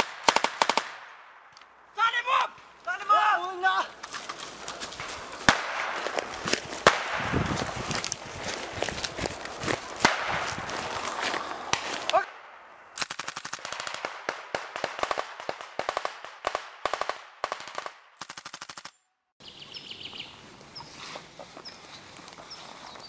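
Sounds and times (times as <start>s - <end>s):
rifle shots: 0.0s - 1.5s, 5.4s - 7.8s, 9.9s - 11.0s, 11.7s - 19.0s
machine gun bursts: 13.0s - 13.9s
birds chirping: 19.4s - 23.0s.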